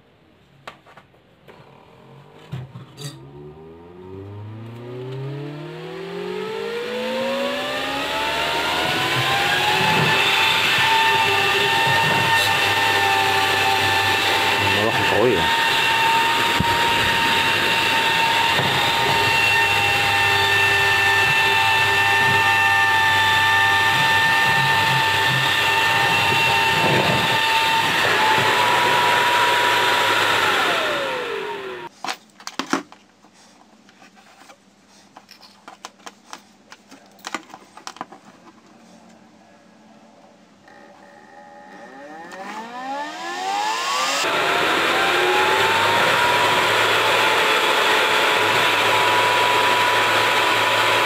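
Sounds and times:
fan spinning down: 1.9 - 31.9, 40.6 - 51.0.

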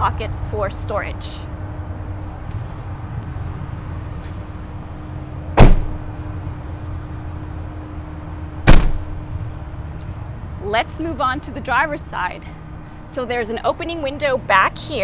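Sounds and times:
steady low hum: 0.0 - 15.0
van doors slamming: 5.6 - 6.1, 8.6 - 9.2.

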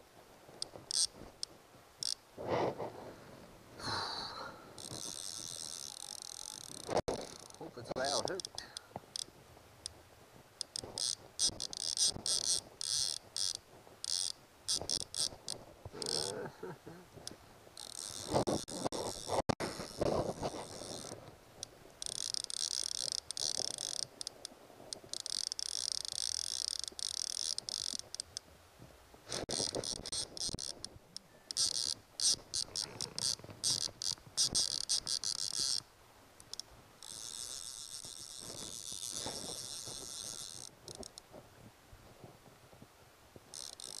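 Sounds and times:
fishing reel ratchet clicking: 0.6 - 1.1, 2.0 - 2.2, 4.8 - 9.3, 10.6 - 15.3, 16.0 - 16.3, 17.8 - 24.3, 24.9 - 28.4, 29.3 - 30.8, 31.5 - 35.8, 36.4 - 41.2, 43.5 - 44.0.

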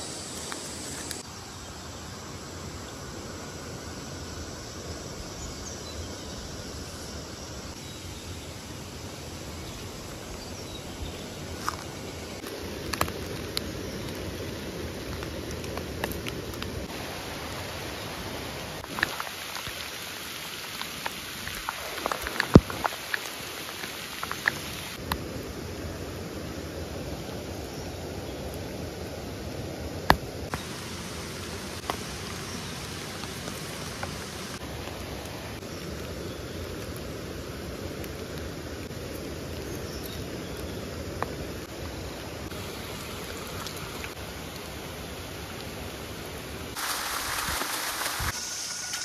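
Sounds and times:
steady background hiss: 0.0 - 49.0
water rushing: 7.6 - 27.6, 28.4 - 49.0
dry leaf litter crackling: 30.5 - 37.0, 46.8 - 49.0.

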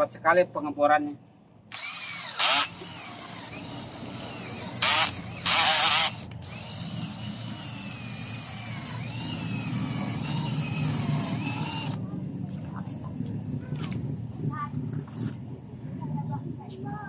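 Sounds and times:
cordless drill boring into wood: 1.7 - 12.0.

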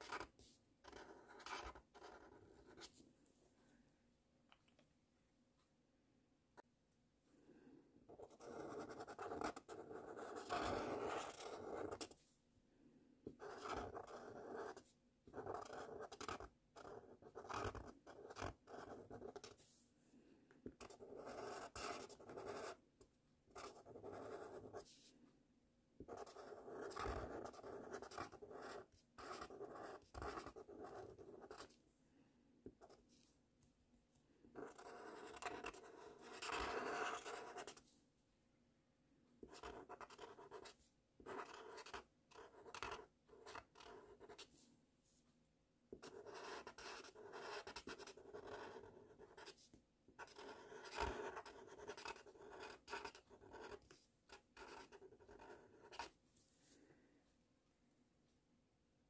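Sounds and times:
marker scratching on paper: 0.0 - 3.0, 8.1 - 12.2, 13.3 - 19.8, 20.8 - 22.8, 23.5 - 25.1, 26.0 - 31.7, 34.6 - 37.8, 39.4 - 44.5, 46.0 - 56.1.

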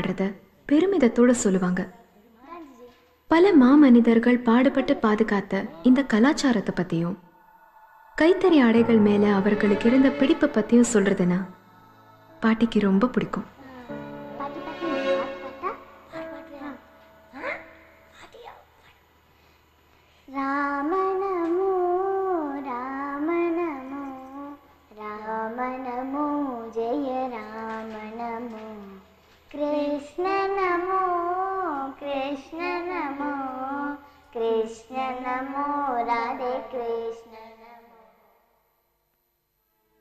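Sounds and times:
girl singing: 7.4 - 18.5, 20.3 - 38.4.

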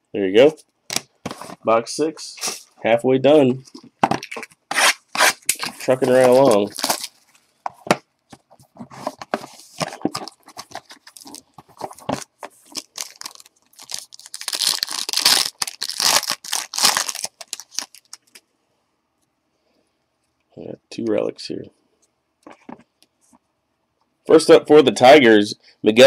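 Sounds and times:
plastic wrapping tearing and crinkling: 4.2 - 7.4, 10.0 - 18.4.

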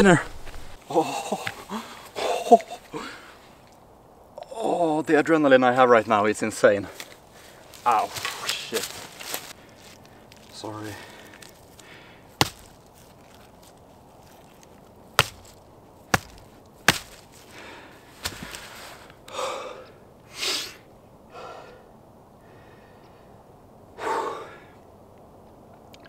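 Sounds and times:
sharp knocks: 15.2 - 17.2
man exhaling heavily and sighing: 19.3 - 21.8.

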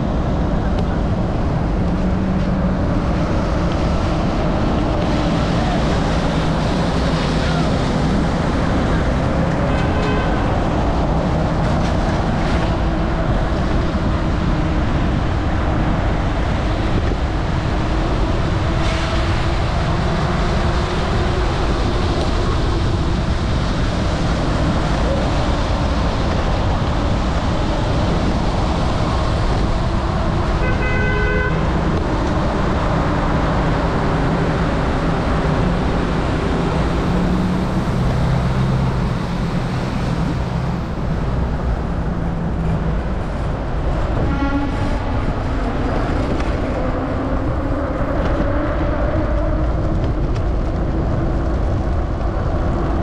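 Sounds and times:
road traffic noise: 0.0 - 53.0
car horn toot: 9.7 - 10.6, 30.6 - 31.7, 44.2 - 44.9.

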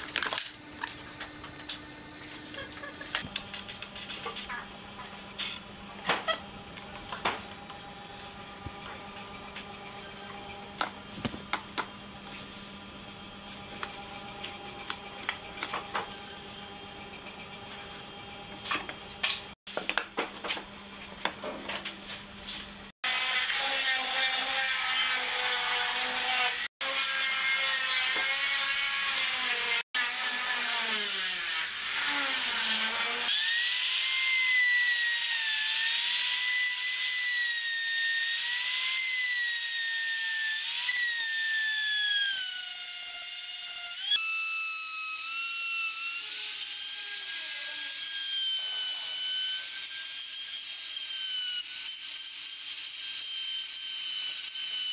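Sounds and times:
router cutting wood: 23.0 - 54.9.

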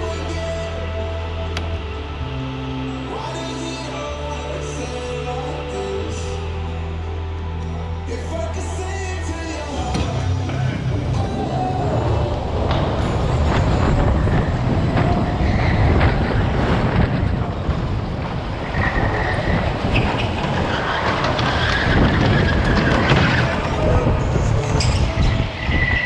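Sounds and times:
go-kart motors: 0.0 - 26.0
high tyre squeals: 10.5 - 17.4, 18.6 - 26.0
wind buffeting on microphone: 10.6 - 26.0.

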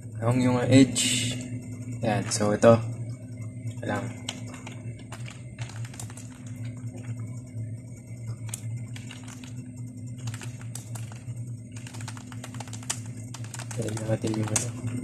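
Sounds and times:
steady low hum: 0.0 - 15.0
keyboard keys clicking: 4.2 - 6.8, 8.4 - 9.5, 10.2 - 15.0.

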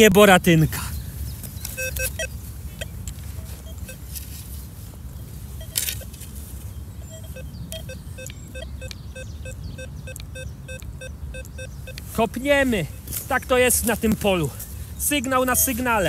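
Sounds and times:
metal detector beeping: 1.6 - 4.2, 5.5 - 6.3, 7.0 - 12.2, 15.3 - 16.0.

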